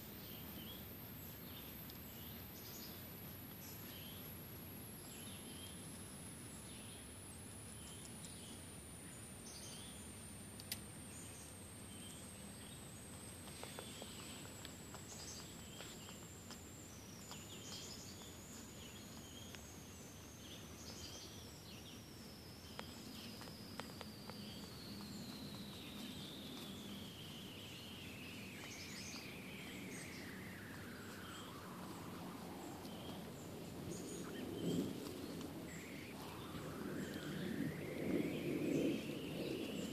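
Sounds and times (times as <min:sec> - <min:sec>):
faint bird chirps: 0:00.0 - 0:39.9
soft ticks and rustles: 0:00.0 - 0:39.9
faint high whistle falling: 0:35.7 - 0:39.7.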